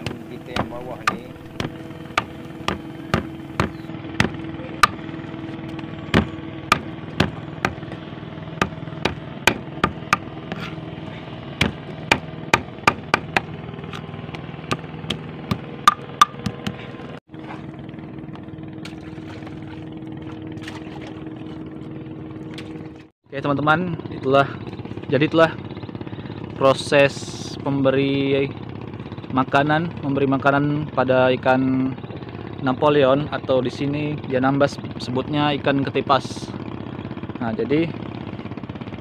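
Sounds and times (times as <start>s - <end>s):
knife chopping fish on wood: 0.0s - 5.0s, 6.1s - 8.0s, 8.6s - 10.8s, 11.6s - 17.0s
steady engine hum: 0.0s - 39.0s.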